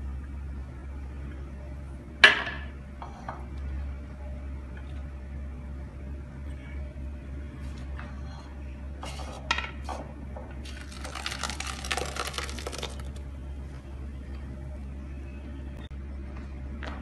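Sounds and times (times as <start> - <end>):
steady low hum: 0.0 - 17.0
pulp splashing into strainer: 10.7 - 13.2.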